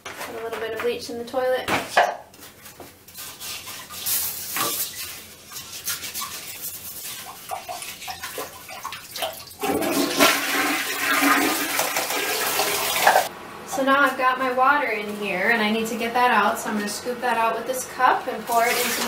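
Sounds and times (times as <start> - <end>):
toilet brush scrubbing: 2.4 - 13.3, 18.4 - 19.0
brush swishing through water: 2.6 - 9.5.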